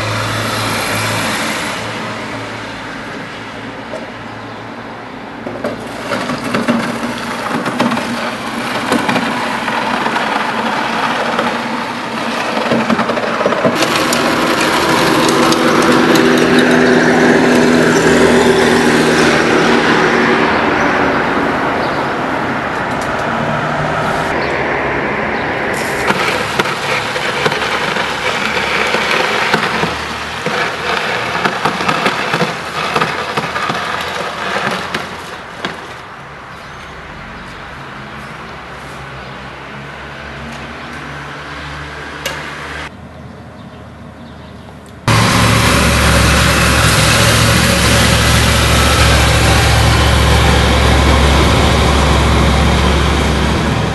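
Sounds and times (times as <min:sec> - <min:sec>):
knocks and scrapes: 0:05.5 - 0:19.5, 0:25.8 - 0:36.0
vehicle engine passing: 0:05.9 - 0:35.6, 0:45.0 - 0:53.9.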